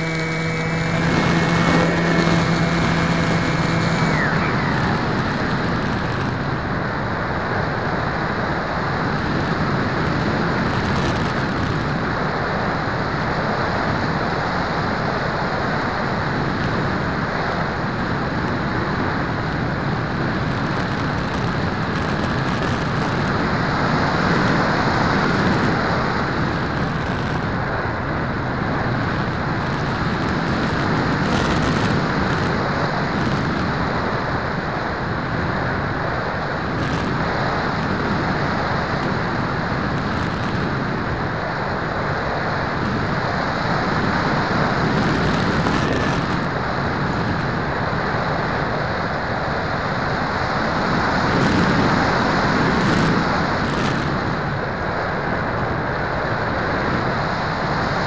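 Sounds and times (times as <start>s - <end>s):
rushing airflow noise: 0.0s - 58.0s.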